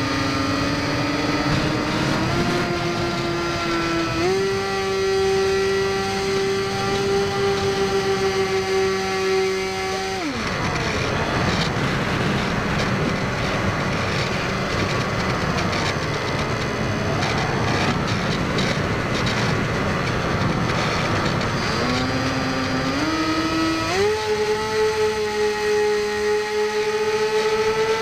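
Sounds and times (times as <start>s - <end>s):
electric motor whine: 0.0s - 28.0s
wind rushing over airframe: 10.5s - 21.6s.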